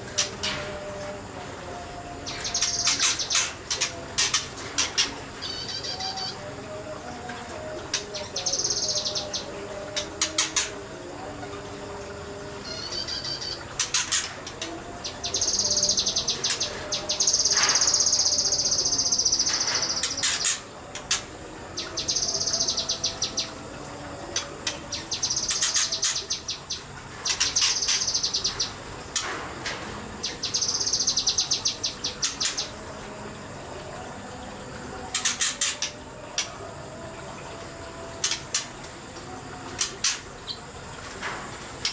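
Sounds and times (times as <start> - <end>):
bird singing fast trills: 2.2 - 6.5, 7.9 - 10.7, 12.6 - 21.2, 21.8 - 24.0, 24.6 - 28.8, 30.2 - 32.8.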